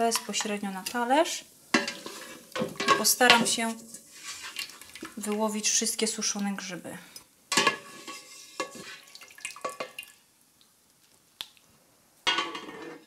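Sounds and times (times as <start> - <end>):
metal pot clang: 1.8 - 3.6, 7.5 - 8.8, 12.3 - 13.0
spatula scraping stockpot: 1.8 - 4.9, 7.6 - 9.9
broth dripping into pot: 8.6 - 10.7.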